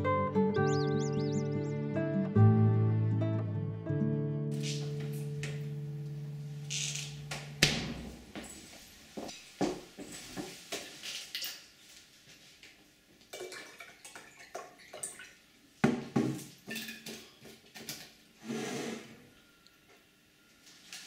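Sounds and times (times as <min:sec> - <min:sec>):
glass clinking and knocking: 0:16.7 - 0:17.5.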